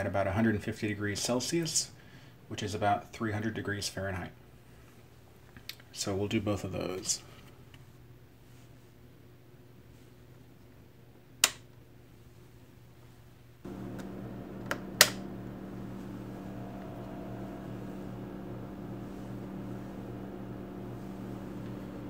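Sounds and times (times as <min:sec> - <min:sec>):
steady low hum: 0:11.9 - 0:22.0.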